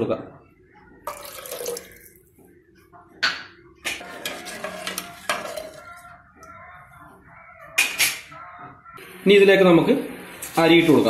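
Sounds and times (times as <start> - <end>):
spoon stirring water in a pot: 1.1 - 2.2, 4.0 - 6.6.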